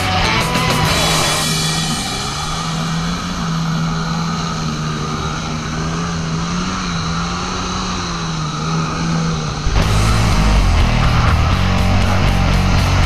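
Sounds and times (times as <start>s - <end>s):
jet ski engine running: 0.0s - 13.0s.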